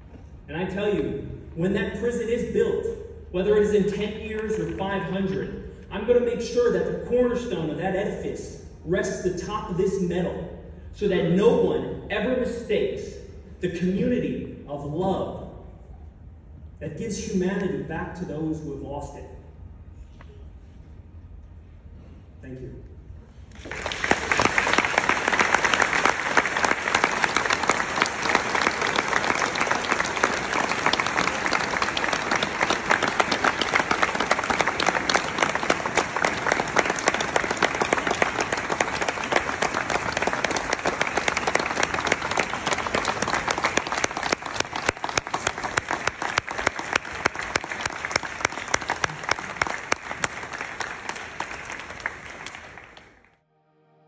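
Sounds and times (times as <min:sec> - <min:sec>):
audience applauding: 0:23.5 - 0:53.4.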